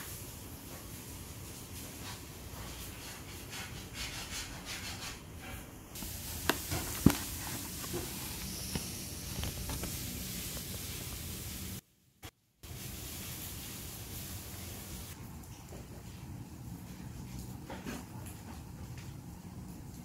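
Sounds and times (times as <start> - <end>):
paper wrapper rustling: 6.0 - 11.1.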